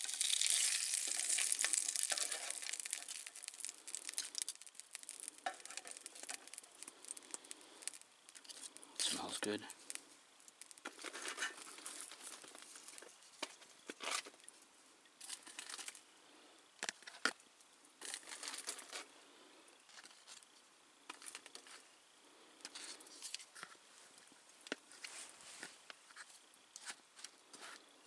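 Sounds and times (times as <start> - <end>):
foil crinkling: 0.0 - 13.1.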